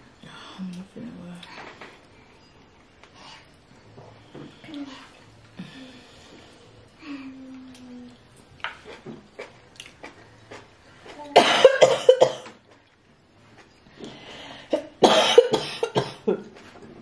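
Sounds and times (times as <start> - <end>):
woman coughing harshly: 11.4 - 12.6, 14.7 - 16.4.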